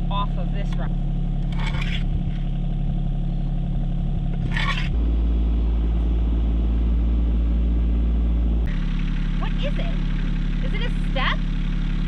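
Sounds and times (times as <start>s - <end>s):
tractor diesel engine droning: 0.0s - 12.0s
shovel scraping dirt: 1.4s - 2.6s, 4.2s - 5.0s.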